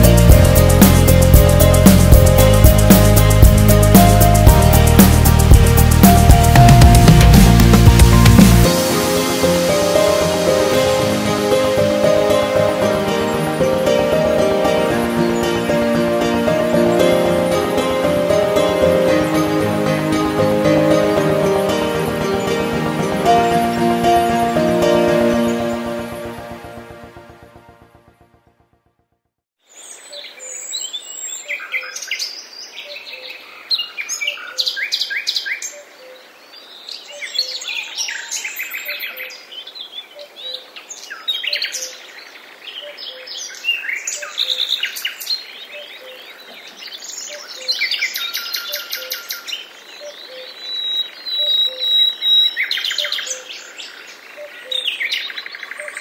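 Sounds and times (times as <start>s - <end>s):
birds singing and chirping: 29.9s - 56.0s.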